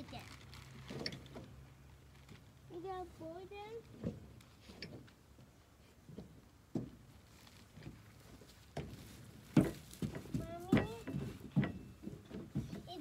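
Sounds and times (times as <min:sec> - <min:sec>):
knocks and thumps: 0:06.1 - 0:07.0, 0:08.7 - 0:13.0.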